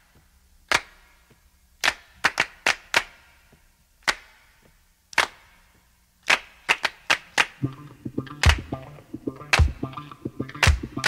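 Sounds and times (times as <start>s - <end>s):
sharp taps: 7.6s - 11.0s.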